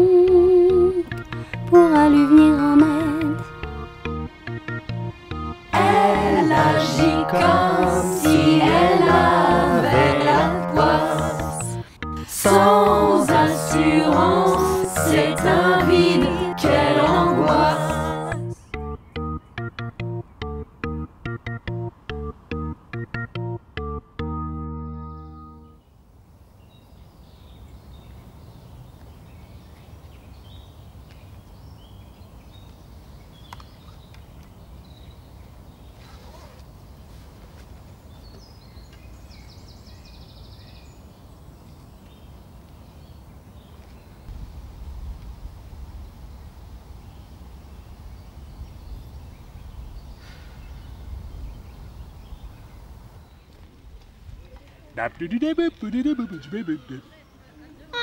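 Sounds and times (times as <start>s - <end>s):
faint open-air ambience: 0.0s - 58.0s
birdsong chirps: 18.4s - 21.6s, 24.7s - 44.7s, 46.0s - 58.0s.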